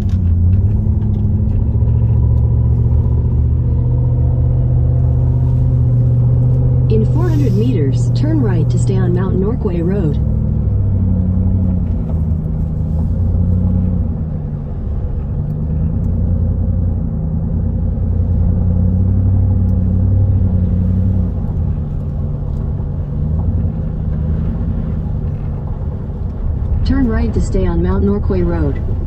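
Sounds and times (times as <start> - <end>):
car engine and road noise: 0.0 - 29.0.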